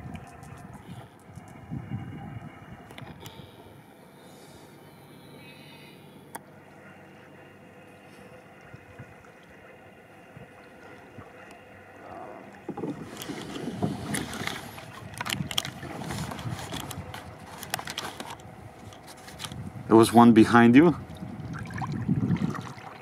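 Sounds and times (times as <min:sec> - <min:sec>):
kayak paddle splashing in water: 0:12.5 - 0:18.3.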